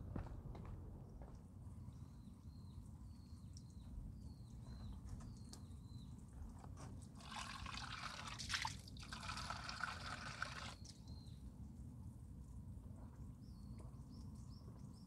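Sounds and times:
bird chirping: 0:01.9 - 0:06.2
water trickling: 0:07.1 - 0:11.0.

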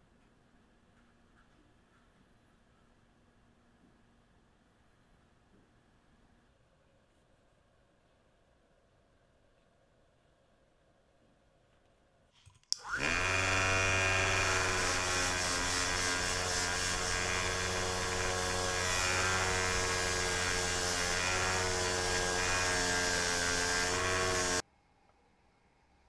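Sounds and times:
bench grinder wire wheel: 0:12.8 - 0:24.6.

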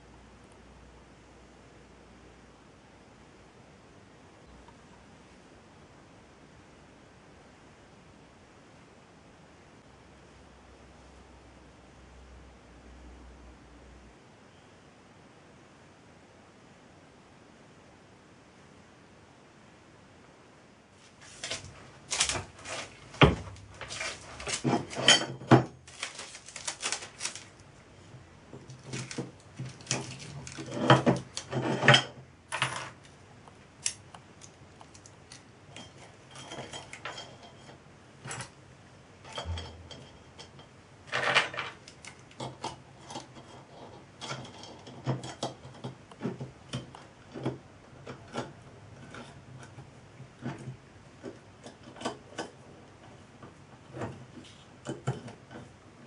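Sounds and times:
metal parts clinking and clattering: 0:23.8 - 0:27.5, 0:39.3 - 0:45.9.

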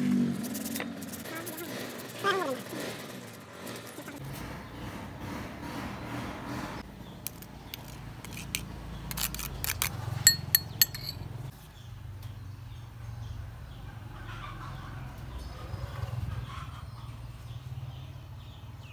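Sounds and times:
spoon scraping grater: 0:00.4 - 0:04.2, 0:07.2 - 0:11.2
hand grater rasping: 0:00.5 - 0:04.2, 0:07.3 - 0:11.1
spoon clinking glass bowl: 0:10.3 - 0:11.2.

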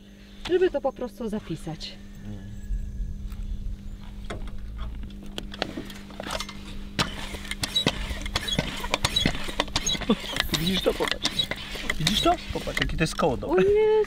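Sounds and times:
foot pump strokes: 0:04.3 - 0:13.4
clicks and knocks of pump hose: 0:05.4 - 0:13.3.

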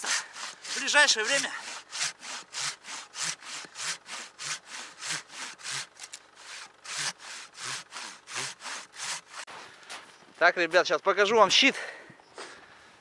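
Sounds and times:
hand saw cutting wood: 0:00.0 - 0:09.5.

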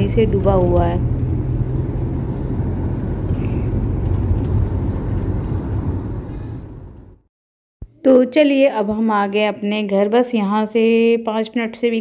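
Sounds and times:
car road and engine rumble: 0:00.0 - 0:07.3.

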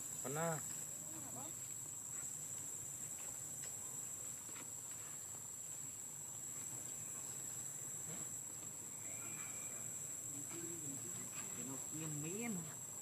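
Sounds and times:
high-pitched insect drone: 0:08.8 - 0:13.0.

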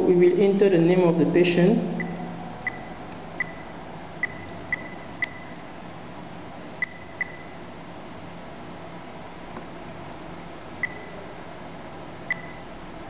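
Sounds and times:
touchscreen key-press beeps: 0:02.0 - 0:05.6, 0:06.8 - 0:07.6, 0:10.8 - 0:11.2, 0:12.3 - 0:12.6.

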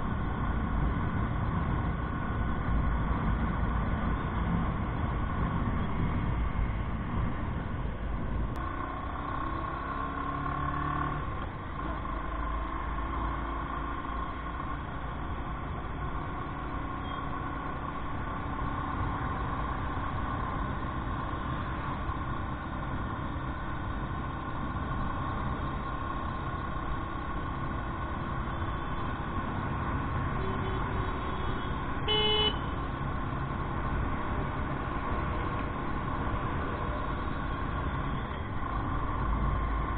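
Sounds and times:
road and wind noise: 0:00.0 - 0:39.9
motorcycle engine cruising: 0:08.6 - 0:32.0
vehicle horn honk: 0:30.4 - 0:32.7.

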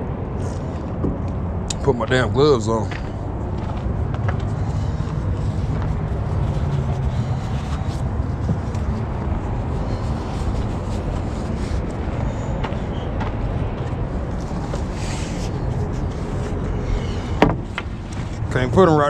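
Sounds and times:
steady low rumble: 0:00.0 - 0:19.0
knocks of handled lumber: 0:17.4 - 0:18.0.

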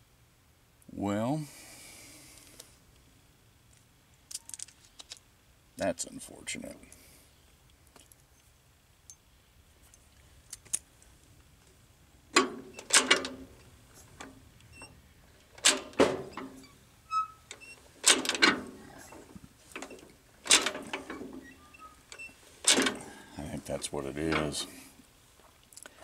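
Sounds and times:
metallic clacks and rattles: 0:12.3 - 0:14.4, 0:15.4 - 0:16.7, 0:17.5 - 0:23.2.

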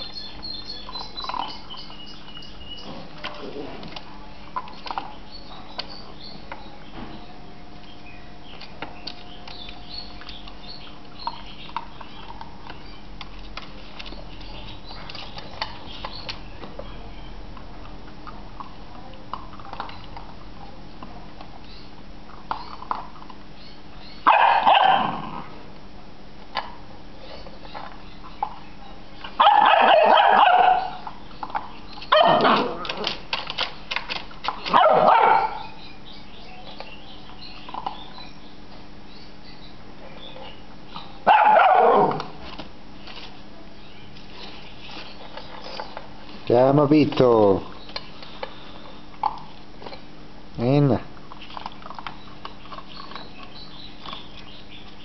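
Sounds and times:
low steady hum: 0:00.0 - 0:55.0
puppy barking: 0:24.2 - 0:25.3, 0:29.4 - 0:31.1, 0:32.1 - 0:32.8, 0:34.7 - 0:35.8, 0:41.2 - 0:42.3.

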